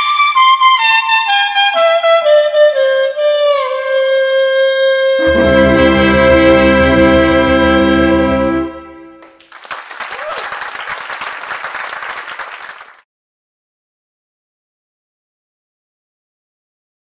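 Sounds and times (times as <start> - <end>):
brass band chord: 5.2 - 9.2
lead horn playing: 5.2 - 9.2.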